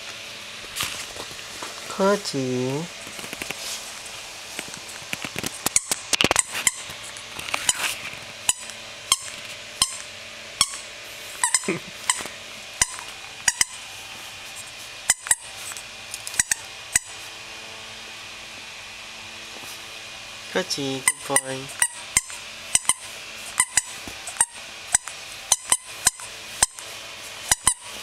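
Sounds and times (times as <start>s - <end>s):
squeaky toy squeaking: 5.7s - 6.9s, 8.5s - 13.8s, 15.1s - 15.5s, 21.0s - 26.8s, 27.5s - 28.0s.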